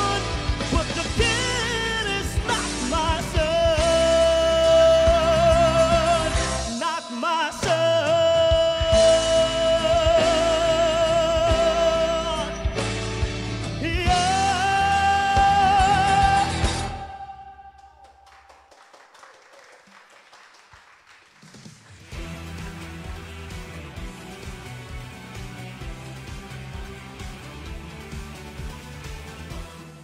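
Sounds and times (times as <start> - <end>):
man singing with vibrato: 0.0 - 12.9, 13.6 - 18.3
band accompaniment: 0.0 - 17.5, 21.4 - 30.0.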